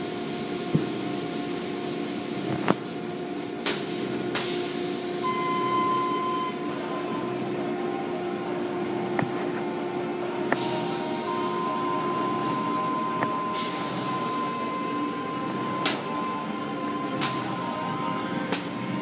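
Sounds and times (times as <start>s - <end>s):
car wash machinery hum: 0.0s - 19.0s
thin steady tone: 3.4s - 19.0s.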